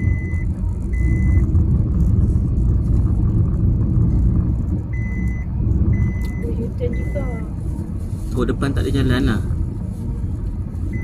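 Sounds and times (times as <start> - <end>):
car warning chime beeps: 0.0 - 1.5, 4.9 - 7.5
car cabin road rumble: 0.0 - 11.0.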